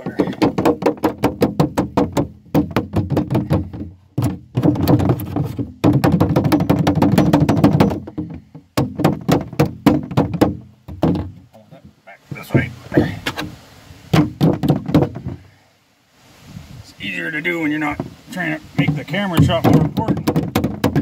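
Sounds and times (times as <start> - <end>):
hammer tapping on metal: 5.8 - 11.3, 18.8 - 21.0.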